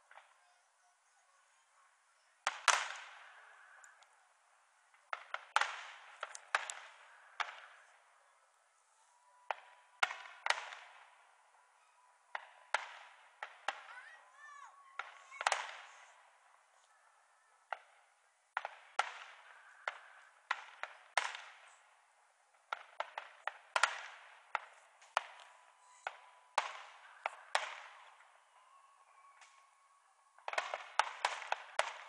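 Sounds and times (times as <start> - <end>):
fireworks bangs: 0.0 - 8.4, 9.2 - 28.8, 30.4 - 32.0
faint steady whistle: 7.0 - 10.0, 11.4 - 12.8, 25.4 - 30.4.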